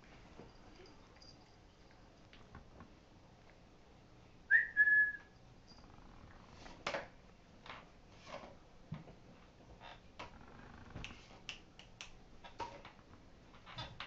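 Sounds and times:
short high whistle: 4.5s - 5.3s.

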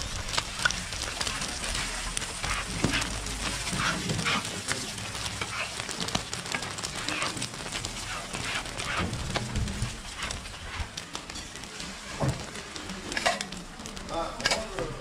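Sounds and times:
food sizzling on a griddle: 0.0s - 15.0s
metal spatula scraping griddle: 1.2s - 4.8s, 6.6s - 12.2s, 14.3s - 14.8s.

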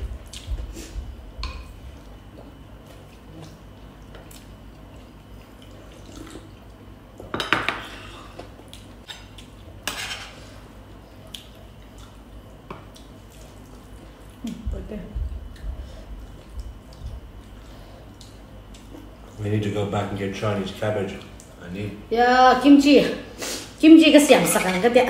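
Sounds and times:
dishes clattering: 7.3s - 7.9s.

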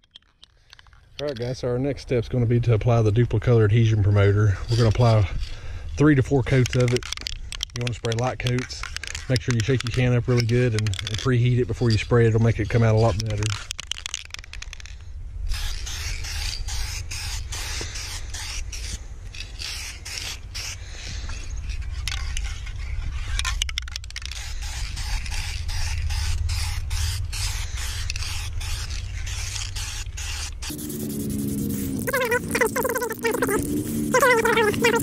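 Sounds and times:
aerosol spray can hissing: 15.5s - 18.9s, 24.3s - 35.0s
steady low rumble: 20.8s - 35.0s.

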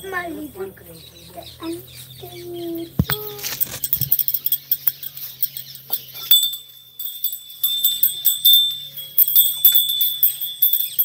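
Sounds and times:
small hand bell ringing: 3.0s - 11.0s.

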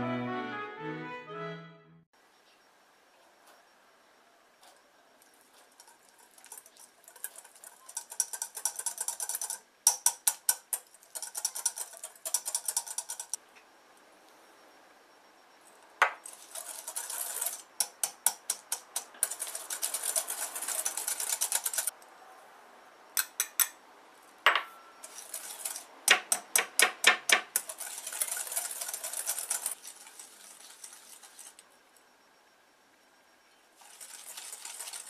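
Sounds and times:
gritty scraping in bowl: 16.2s - 18.0s, 25.0s - 25.9s, 27.5s - 31.6s, 33.8s - 35.0s.

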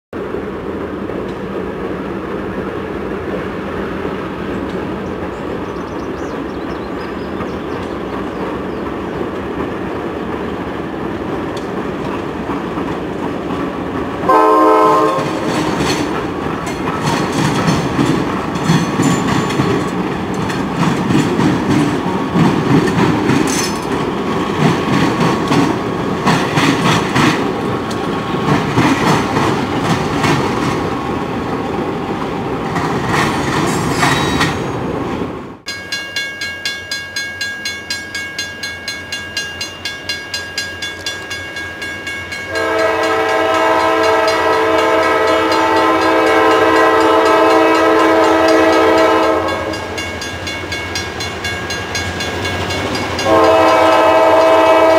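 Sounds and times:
diesel locomotive engine rumble: 0.2s - 54.9s
train horn blast: 14.2s - 15.7s, 42.5s - 49.9s, 53.2s - 54.9s
wheels clattering over rails: 15.2s - 31.0s.

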